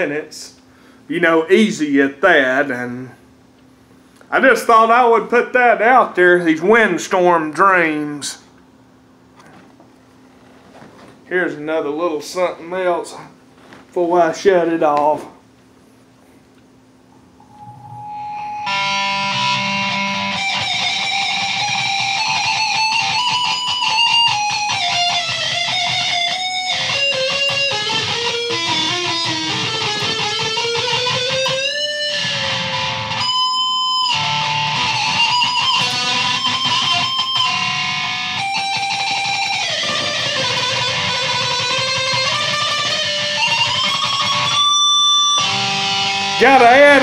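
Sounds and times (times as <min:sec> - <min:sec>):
electric guitar lead melody: 0:17.4 - 0:47.0.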